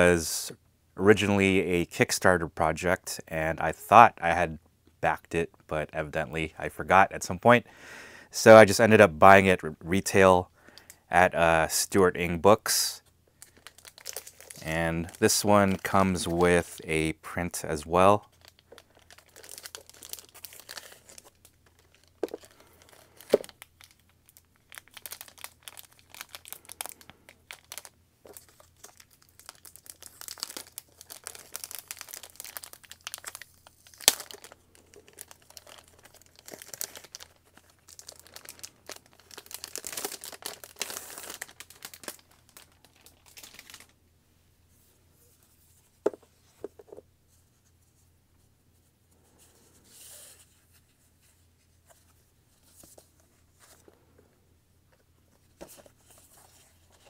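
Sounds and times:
plastic wrapping crinkling: 13.4s - 16.8s, 18.2s - 44.0s
plastic film peeled and torn: 23.2s - 44.0s.

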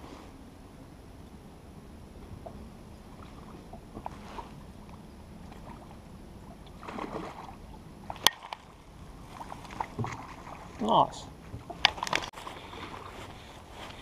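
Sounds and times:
water lapping against boat hull: 2.0s - 14.0s
fish splashing: 3.0s - 11.0s, 11.6s - 13.8s.

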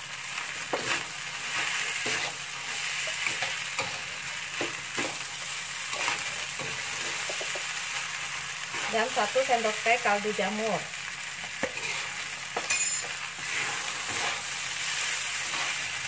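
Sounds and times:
rice sizzling in a wok: 0.0s - 16.0s
wooden spatula scraping wok: 0.6s - 7.7s, 11.6s - 16.0s.

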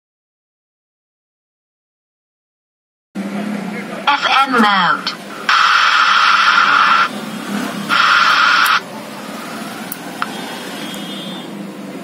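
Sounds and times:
loud static bursts: 4.1s - 9.6s
steady static hiss: 4.1s - 9.7s.

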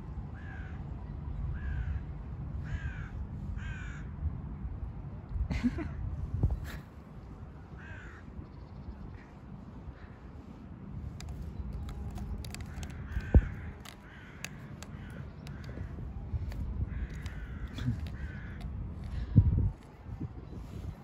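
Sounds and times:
steady low rumble: 0.0s - 21.0s
crows cawing: 2.7s - 4.1s, 7.8s - 8.3s, 12.4s - 15.9s, 16.9s - 19.2s.

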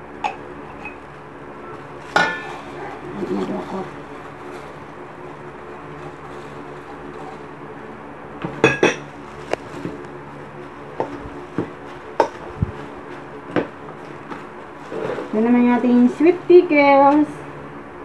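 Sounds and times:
steady hum: 0.0s - 18.0s
metal bowl knocking and clinking: 2.1s - 2.6s, 8.5s - 9.1s.

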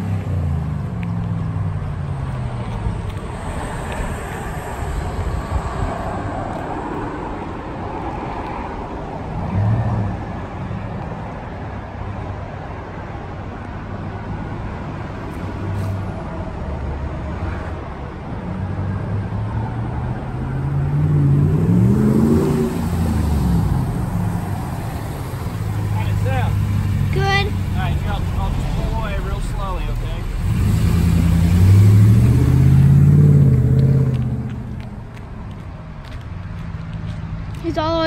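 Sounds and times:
truck exhaust rumble: 18.3s - 38.0s
engine revving: 20.2s - 35.0s.

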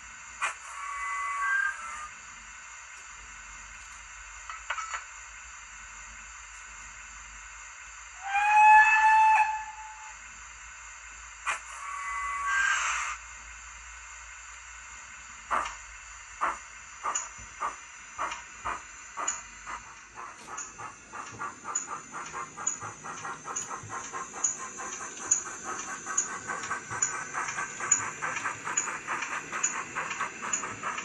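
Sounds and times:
steady hiss of steam: 0.0s - 2.5s, 5.3s - 31.0s
locomotive whistle blast: 8.2s - 10.2s.

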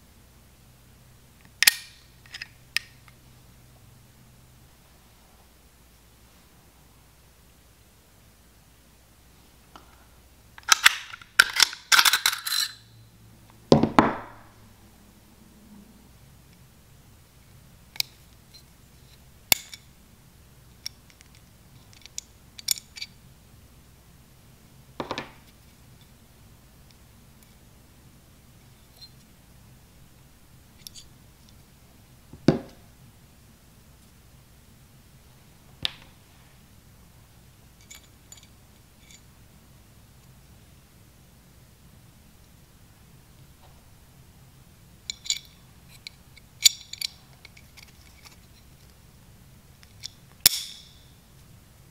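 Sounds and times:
pistol slide metal clicks: 1.4s - 3.1s, 10.6s - 12.4s, 50.0s - 51.0s.

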